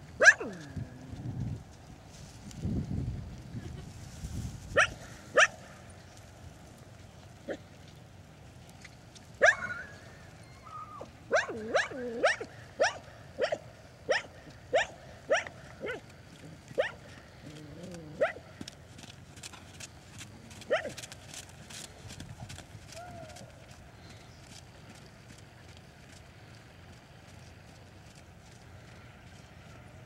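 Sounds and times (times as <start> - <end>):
dog barking: 0.2 - 0.5, 4.8 - 5.6, 9.4 - 9.9, 11.3 - 16.0, 16.8 - 17.0, 20.7 - 21.0.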